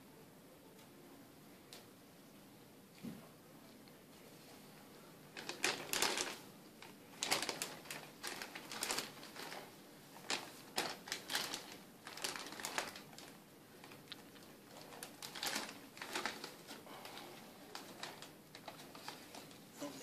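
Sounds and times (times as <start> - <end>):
plastic bag crinkling: 5.3 - 19.6.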